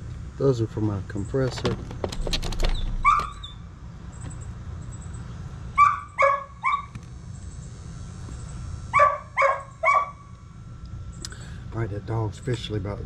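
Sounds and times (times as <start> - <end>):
dog barking: 3.0 - 3.5, 5.8 - 6.9, 8.9 - 10.2.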